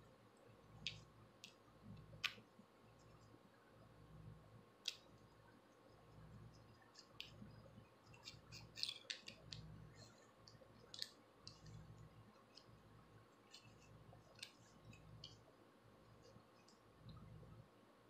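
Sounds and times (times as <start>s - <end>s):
comb clicking and scratching scalp: 0.4s - 3.4s, 4.8s - 16.9s
nails scratching scalp: 8.1s - 12.8s.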